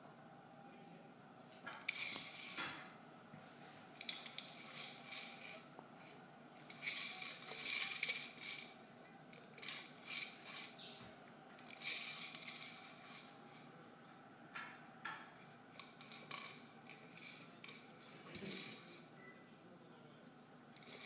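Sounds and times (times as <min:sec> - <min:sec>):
kibble rattling in a plastic ball: 0:06.6 - 0:08.7, 0:11.6 - 0:13.3.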